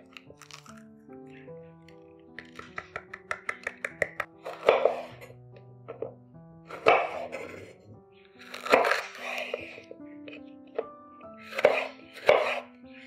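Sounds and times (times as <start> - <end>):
soft background music: 0.0 - 13.0
knife chopping on cutting board: 2.4 - 5.3, 6.7 - 7.7, 8.4 - 9.8, 11.4 - 12.7.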